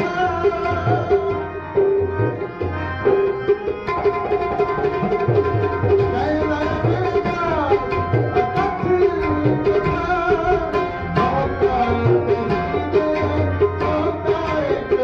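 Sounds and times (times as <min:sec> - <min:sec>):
sustained melody line: 0:00.0 - 0:15.0
tabla drumming: 0:00.0 - 0:15.0.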